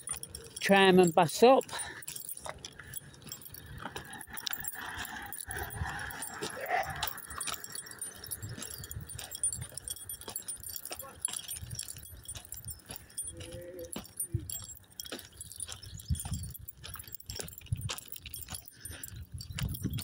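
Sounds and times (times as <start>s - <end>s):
footsteps on tarmac: 0.0s - 20.0s.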